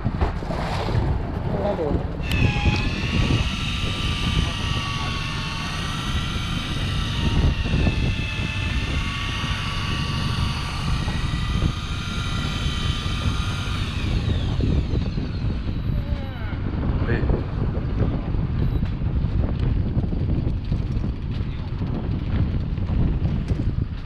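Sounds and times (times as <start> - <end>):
sea rumble: 0.0 - 12.6
wind: 0.0 - 24.0
electric fishing reel motor whine: 2.2 - 19.1.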